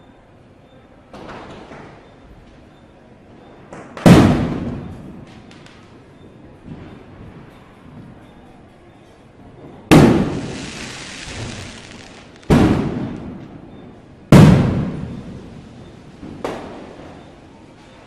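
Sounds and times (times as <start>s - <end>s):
firecrackers exploding: 4.0s - 6.0s, 9.9s - 17.4s.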